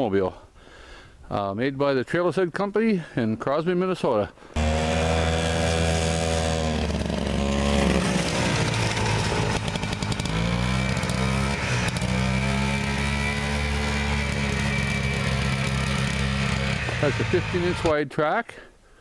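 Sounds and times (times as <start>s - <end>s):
snowmobile engine running: 4.6s - 17.9s.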